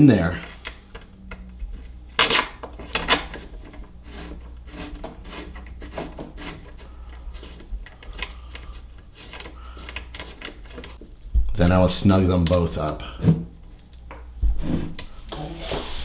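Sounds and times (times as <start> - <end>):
allen key turning screw: 0.4 - 11.0
screw scraping in hole: 1.7 - 11.0.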